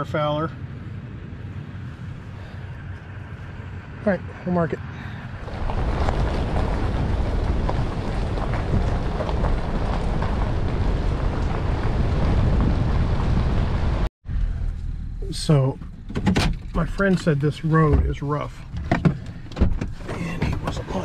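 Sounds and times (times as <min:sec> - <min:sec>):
tyres rolling over gravel: 0:05.3 - 0:14.0
wind on microphone: 0:05.4 - 0:14.1.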